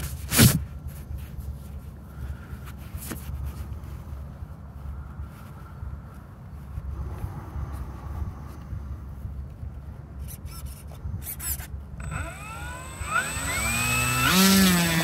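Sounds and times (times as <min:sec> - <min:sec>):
wind rumble on microphone: 0:00.4 - 0:12.0
electric motor and propeller whine: 0:12.0 - 0:15.0.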